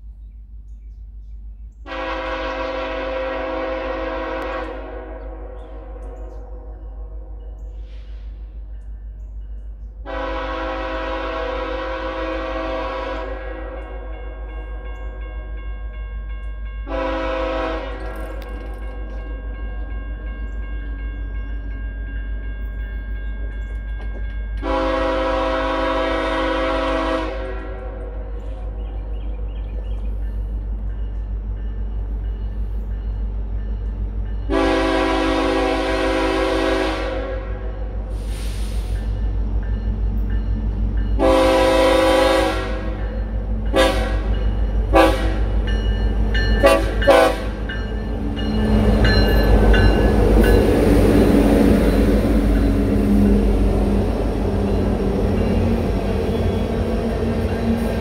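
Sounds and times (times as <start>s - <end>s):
train air horn blast: 1.9s - 8.6s, 10.0s - 14.6s, 16.9s - 18.4s, 24.6s - 28.7s, 34.5s - 39.1s, 41.2s - 43.1s, 43.7s - 45.6s, 46.6s - 47.7s
crossing warning bell ringing: 1.9s - 28.8s, 29.7s - 58.0s.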